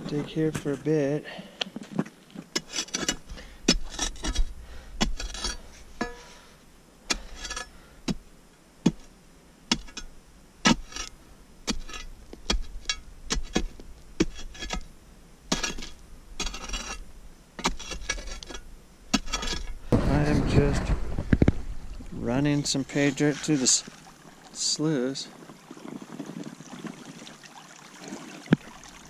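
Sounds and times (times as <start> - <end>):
metal tool scraping gravel: 2.5 - 6.4, 7.1 - 8.2, 10.7 - 14.9, 15.5 - 24.0
metal tool striking gravel: 2.6 - 6.3, 15.5 - 17.0, 17.6 - 21.5, 22.1 - 23.9.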